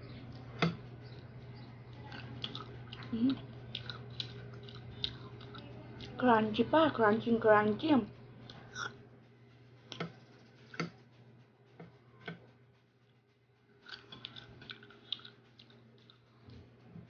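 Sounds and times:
low hum: 0.0 - 17.0
crunching mango: 2.1 - 6.2, 13.8 - 16.3.

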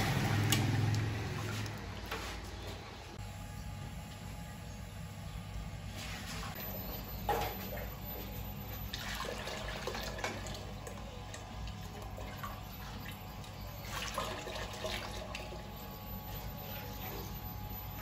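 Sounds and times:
steady low hum: 0.0 - 18.0
liquid splashing and pouring: 0.6 - 2.1, 8.9 - 13.2, 13.8 - 15.5.

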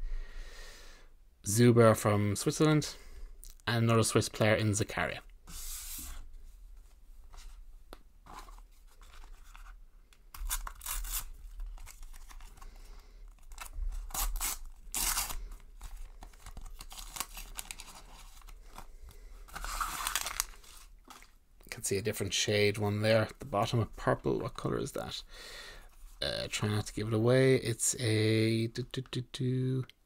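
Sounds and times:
paper wrapper ripping and crinkling: 13.4 - 18.9, 19.5 - 21.3.

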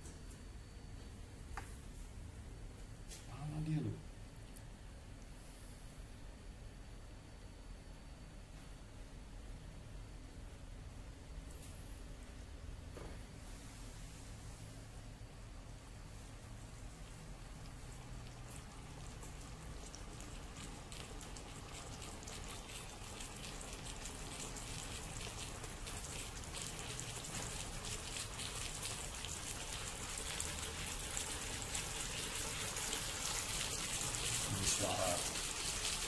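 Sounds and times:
steaks sizzling on grill: 21.8 - 36.0.

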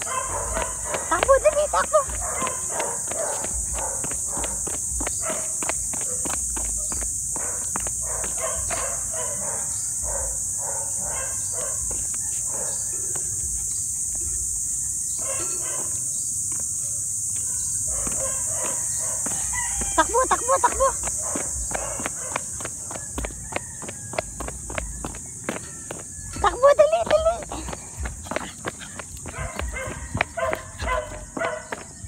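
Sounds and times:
paw scuffs and clicks: 0.0 - 9.2, 17.4 - 32.0
footsteps on concrete: 0.0 - 32.0
insects chorus: 0.0 - 32.0.

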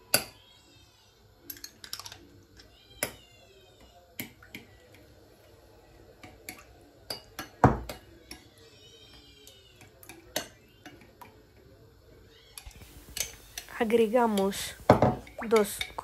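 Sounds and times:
metal spoon clinking in ceramic bowl: 6.2 - 8.5, 9.8 - 11.2, 12.6 - 13.7.

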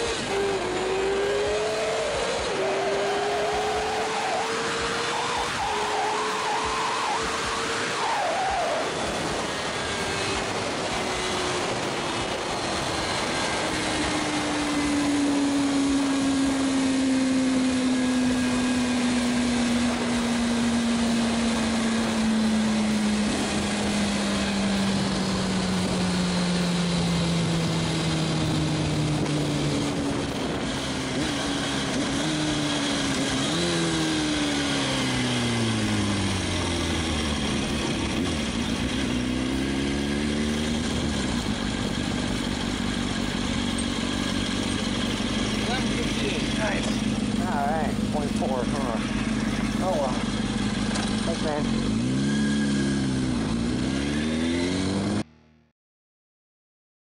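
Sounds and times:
motorcycle engine slowing down: 8.9 - 55.5
wind rush: 27.4 - 32.4.

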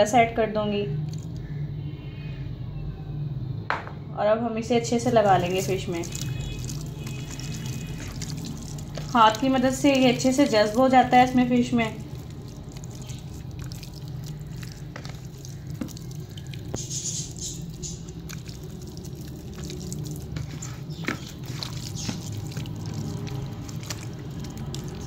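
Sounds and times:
hand kneading wet paste: 5.0 - 25.0.

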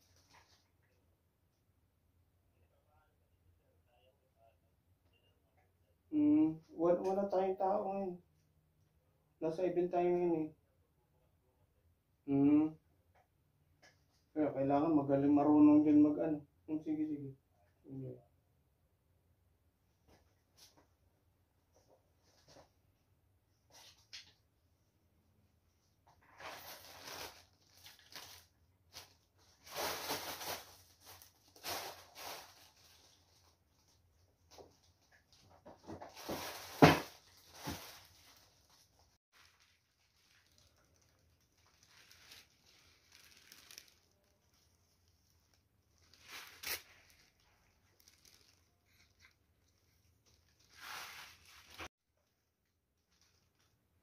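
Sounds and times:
cellophane crinkling: 26.2 - 33.9, 35.6 - 51.9, 52.9 - 54.0
leaves and flowers rustling: 36.2 - 51.9.

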